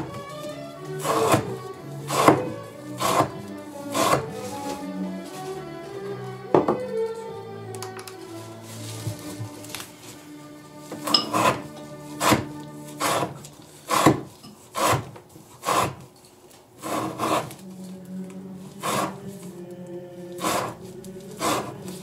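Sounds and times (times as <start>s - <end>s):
knife slicing through rope: 11.0s - 14.2s.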